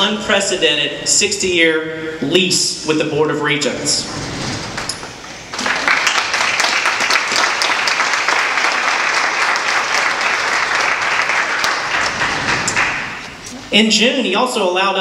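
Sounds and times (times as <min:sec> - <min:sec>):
audience applauding: 0:04.7 - 0:13.4.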